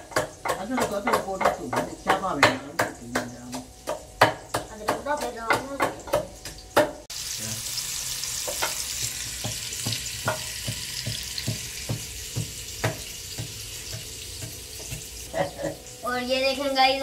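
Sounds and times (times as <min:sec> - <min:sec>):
food frying in hot oil: 0:00.0 - 0:17.0
pounding in a mortar: 0:08.5 - 0:15.1.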